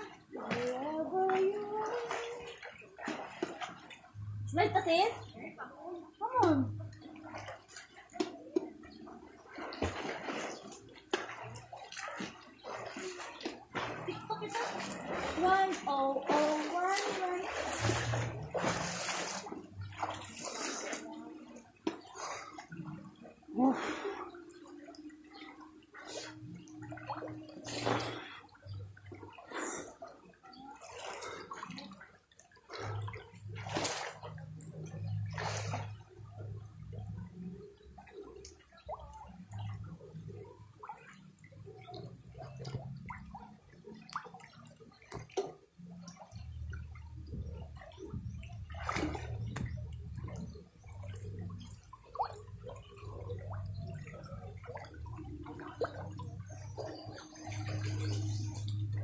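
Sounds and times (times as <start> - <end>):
sharp splashes: 0.0 - 4.0, 9.2 - 21.1, 25.4 - 30.0, 30.8 - 36.0, 47.8 - 58.6
water sloshing and gurgling: 0.0 - 59.0.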